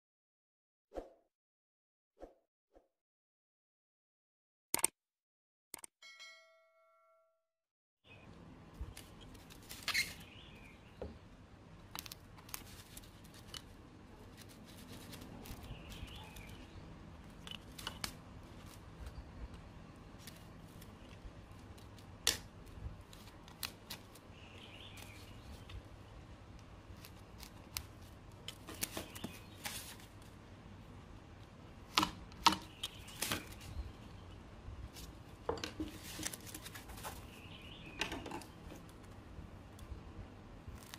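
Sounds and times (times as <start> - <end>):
short chime: 6.0 - 7.4
low room noise: 8.1 - 40.9
foam sheet rustling: 12.4 - 16.5, 26.9 - 30.2.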